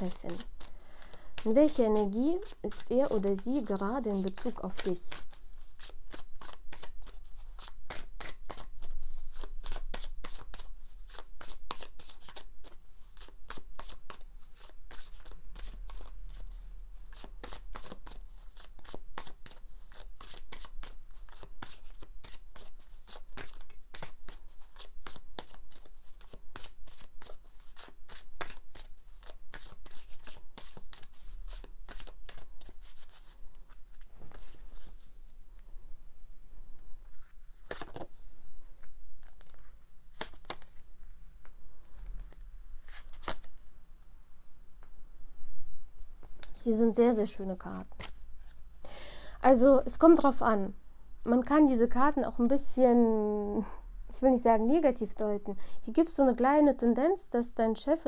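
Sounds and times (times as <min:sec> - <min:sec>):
cards being shuffled: 0:00.1 - 0:35.4, 0:37.0 - 0:43.6, 0:47.8 - 0:48.6.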